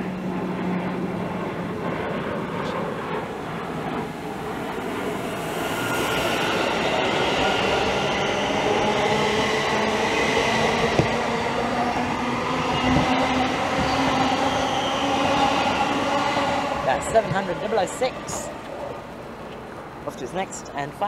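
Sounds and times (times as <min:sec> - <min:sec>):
electric train motors whining: 0:03.2 - 0:19.7.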